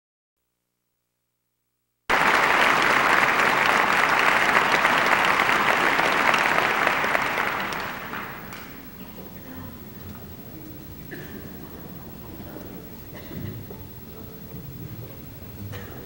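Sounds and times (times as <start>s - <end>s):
audience applause: 2.1s - 9.0s.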